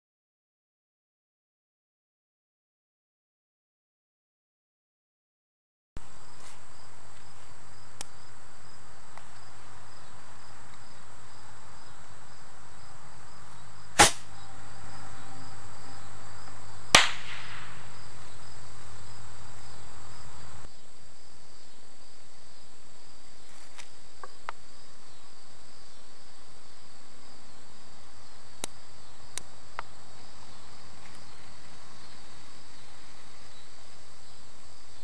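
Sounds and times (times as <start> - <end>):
low hum: 6.0 - 20.7
insects chirping: 6.0 - 35.0
sharp bangs: 14.0 - 14.4, 16.9 - 18.2.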